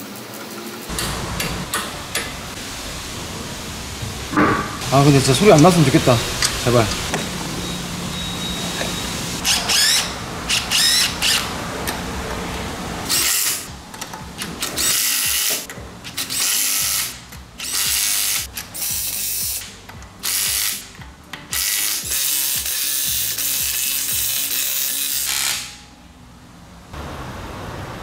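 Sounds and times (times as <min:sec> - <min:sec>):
impact wrench whirring and hammering: 0:09.4 - 0:12.0, 0:13.0 - 0:25.9.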